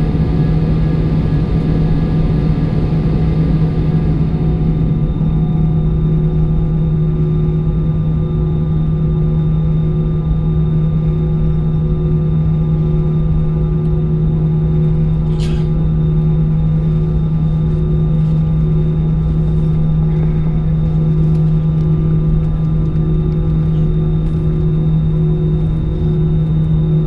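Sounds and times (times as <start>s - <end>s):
airplane cabin drone: 0.0s - 27.0s.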